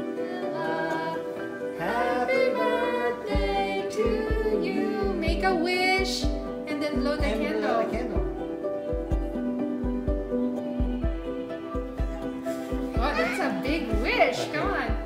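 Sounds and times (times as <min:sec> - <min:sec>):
several voices singing: 0:00.0 - 0:08.4
instrumental chords: 0:00.0 - 0:15.0
drum beat: 0:03.3 - 0:15.0.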